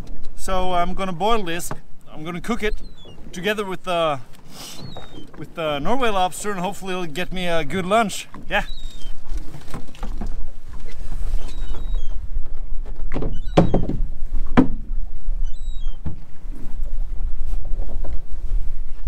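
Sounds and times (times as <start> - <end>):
choppy water: 0.0 - 19.0
wind: 0.0 - 19.0
knocks against boat hull: 12.8 - 14.9.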